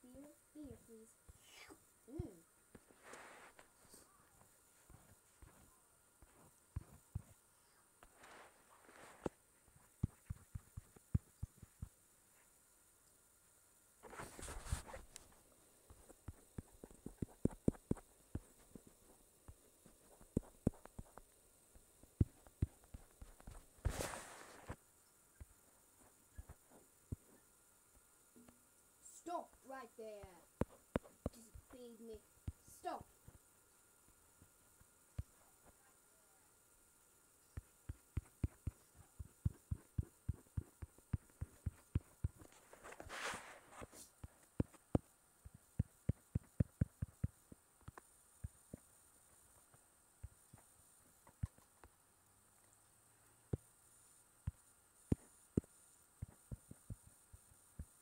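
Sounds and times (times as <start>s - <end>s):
soft rustle: 1.3s - 12.7s, 14.0s - 27.5s, 37.5s - 44.9s.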